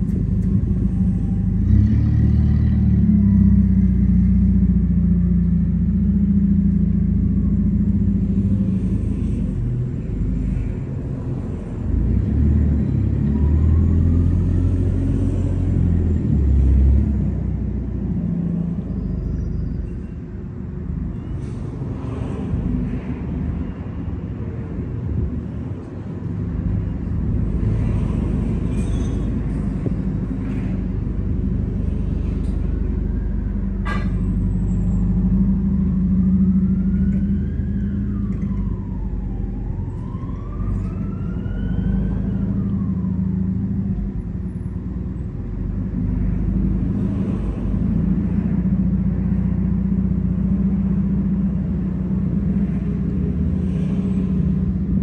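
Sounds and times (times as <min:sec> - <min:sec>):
distant siren wailing: 0:00.7 - 0:02.0, 0:35.2 - 0:44.2.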